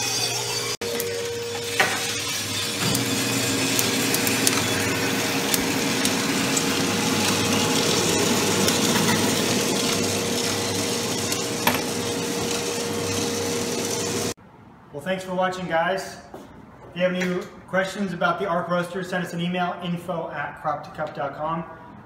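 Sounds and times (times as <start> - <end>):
machine hum: 0.3 - 14.4
coffee beans rattling in tray: 2.2 - 14.1.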